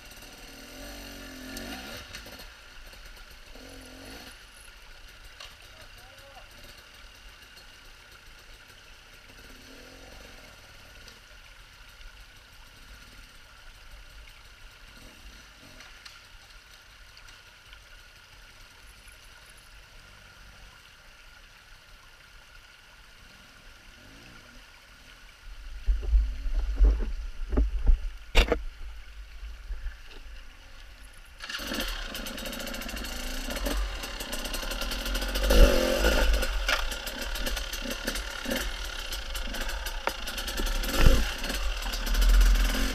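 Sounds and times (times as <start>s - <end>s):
nearby dirt bike engine: 0.0s - 11.2s, 14.4s - 16.2s, 29.6s - 42.9s
low bumps: 25.5s - 31.4s, 32.5s - 42.9s
distant dirt bike engine: 30.6s - 42.9s.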